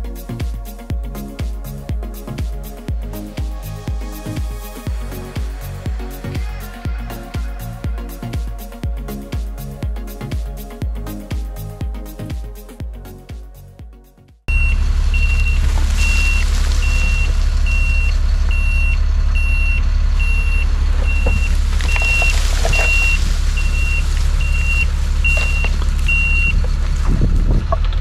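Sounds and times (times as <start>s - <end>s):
dirt pouring: 14.5s - 18.6s, 20.8s - 27.0s
backup alarm beeping: 14.5s - 26.6s
truck engine running: 14.5s - 28.0s.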